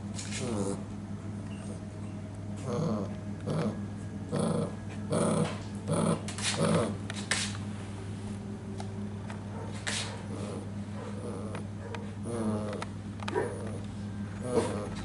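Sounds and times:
low hum: 0.0 - 15.0
puppy growling: 0.2 - 1.9, 2.6 - 7.3, 9.6 - 15.0.

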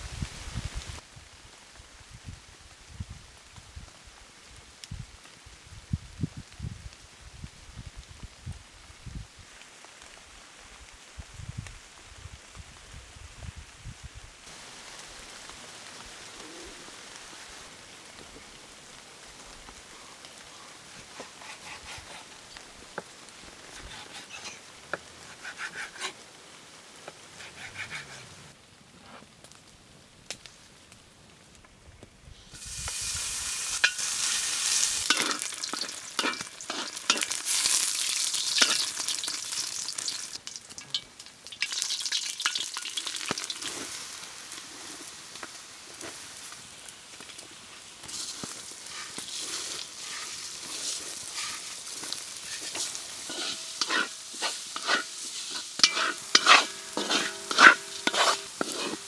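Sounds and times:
fat sizzling in a wok: 20.8 - 28.6, 32.3 - 59.0
wooden spatula stirring: 34.6 - 37.8, 48.1 - 59.0.

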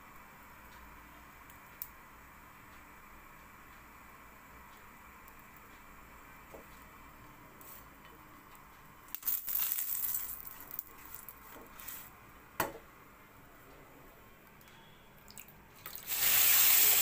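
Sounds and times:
rustling scrape: 11.0 - 12.2.

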